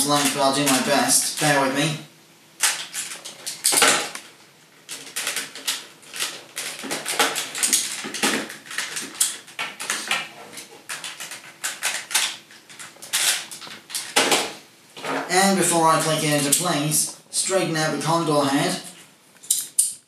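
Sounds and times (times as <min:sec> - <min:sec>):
plastic toy parts clicking and scraping: 0:02.6 - 0:04.3, 0:04.9 - 0:14.4.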